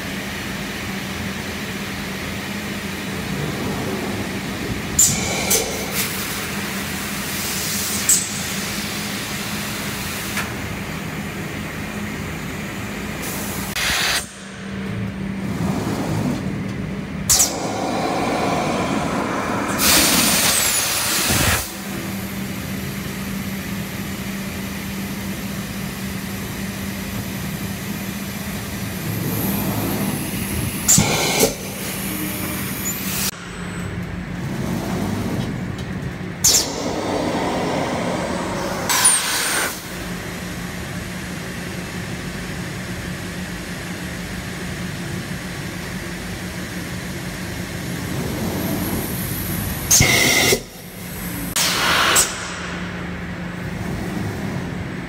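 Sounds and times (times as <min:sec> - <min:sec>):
machine humming: 0:10.6 - 0:41.4.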